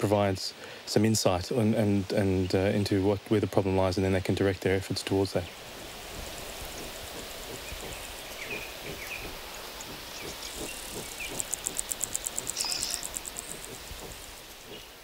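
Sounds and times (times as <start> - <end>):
insect trilling: 6.0 - 15.0.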